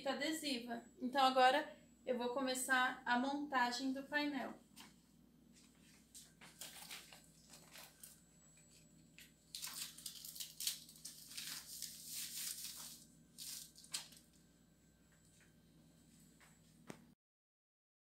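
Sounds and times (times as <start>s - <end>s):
paper rustling and crinkling: 5.6s - 14.4s.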